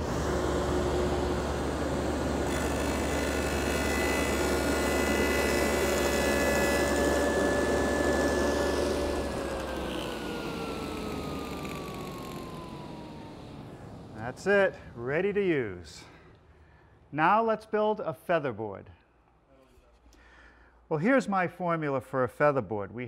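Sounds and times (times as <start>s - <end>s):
saw blade whining through wood: 0.0s - 14.7s
table saw running: 0.0s - 14.7s.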